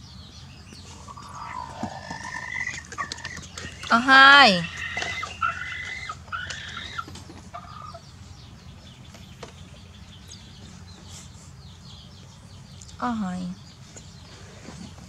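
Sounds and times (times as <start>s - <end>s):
hen clucking: 0.6s - 11.6s.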